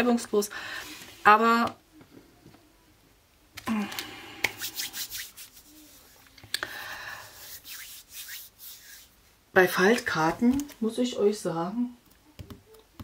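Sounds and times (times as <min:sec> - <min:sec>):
paper rustling and rubbing: 0:04.5 - 0:06.4, 0:07.3 - 0:09.2.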